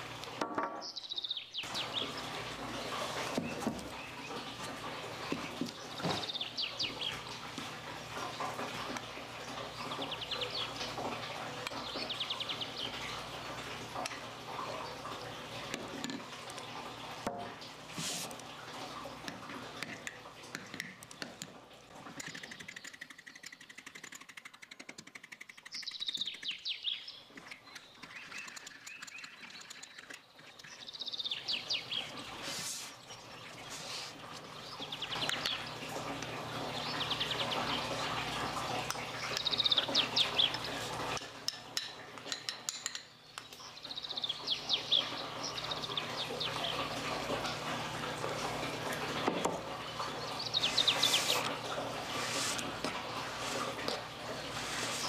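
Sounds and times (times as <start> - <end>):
small birds chirping: 0.7 - 7.6, 8.2 - 15.7, 25.2 - 41.2, 43.1 - 47.7, 49.0 - 52.6.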